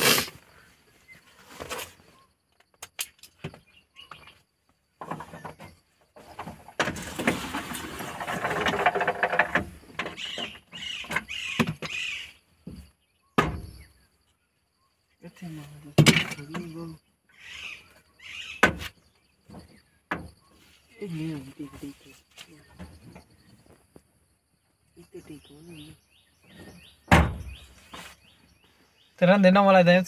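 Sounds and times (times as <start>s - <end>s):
plastic rubbing and squeaking: 5.0s - 12.1s.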